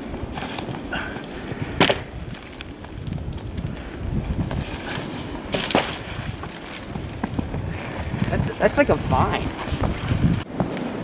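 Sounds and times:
woody vine cracking: 0:00.0 - 0:08.4
wind buffeting microphone: 0:00.0 - 0:11.0.

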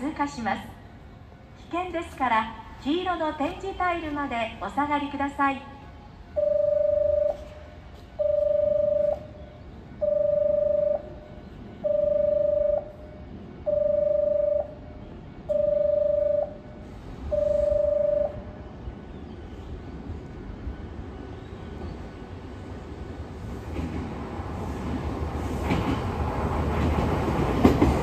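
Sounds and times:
train rumble: 0:00.0 - 0:28.0
electronic warning beeps: 0:08.2 - 0:09.4, 0:10.0 - 0:11.2, 0:11.8 - 0:13.1, 0:13.7 - 0:14.8, 0:15.5 - 0:16.6, 0:17.3 - 0:18.5.

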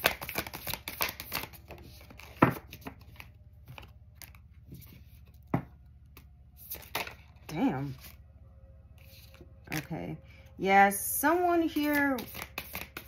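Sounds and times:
cards being shuffled: 0:00.0 - 0:05.4, 0:06.6 - 0:08.2, 0:11.8 - 0:13.0.

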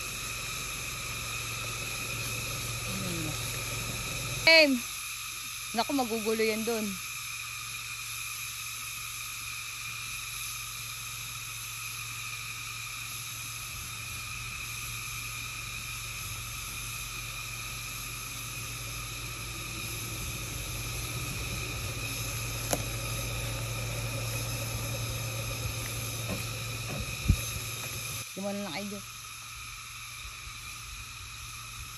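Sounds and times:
suv engine climbing trail: 0:00.0 - 0:04.5, 0:12.8 - 0:28.3
chorus of insects: 0:00.0 - 0:31.9.

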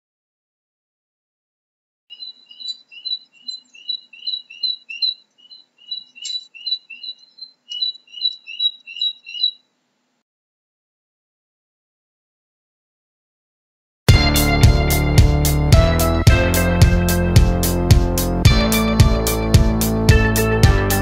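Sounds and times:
small animal chirping: 0:02.1 - 0:09.6.

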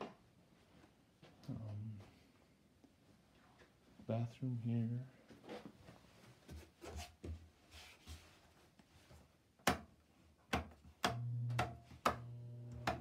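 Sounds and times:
wall switches clicking: 0:10.5 - 0:13.0
steady electrical hum: 0:11.1 - 0:13.0.

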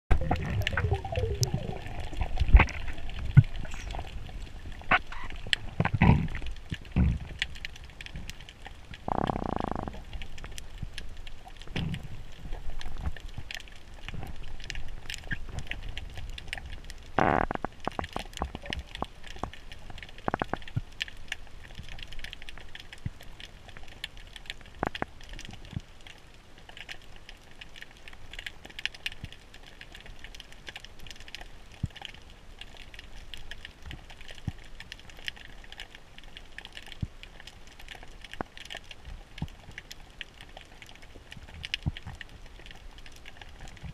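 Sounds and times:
underwater clicks and pops: 0:00.1 - 0:07.6
low rumbling of water movement: 0:00.1 - 0:43.9.

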